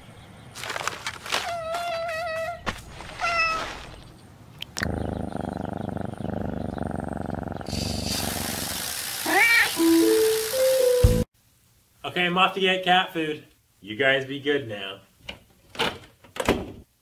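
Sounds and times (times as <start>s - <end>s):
cat meowing: 1.4s - 3.7s, 9.3s - 9.8s
cat purring: 4.8s - 8.7s
rushing hiss: 7.7s - 11.2s.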